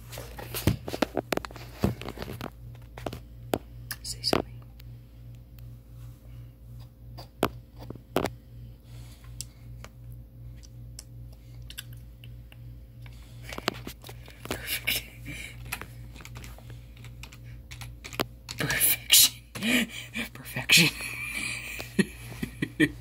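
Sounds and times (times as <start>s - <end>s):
steady low hum: 0.0s - 23.0s
keyboard typing: 15.6s - 19.6s.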